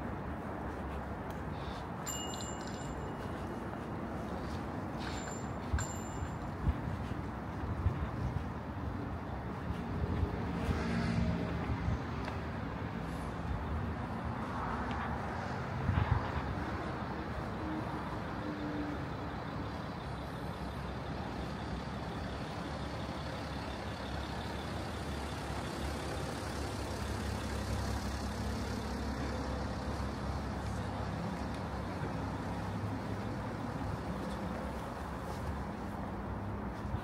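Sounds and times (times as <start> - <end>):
heavy vehicle engine rumble: 0.0 - 37.0
traffic road noise hum: 0.0 - 37.0.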